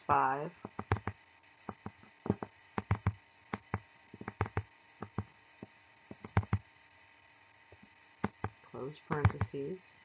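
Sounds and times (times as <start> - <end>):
faint steady hiss: 0.0 - 10.0
stylus clicking on tablet: 0.6 - 6.6, 7.8 - 9.6.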